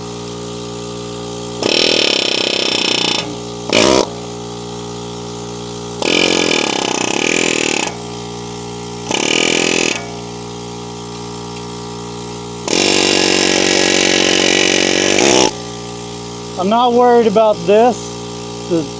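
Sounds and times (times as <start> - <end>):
pneumatic air hammer blows: 0.0 - 15.6
steady machine hum: 0.0 - 18.9.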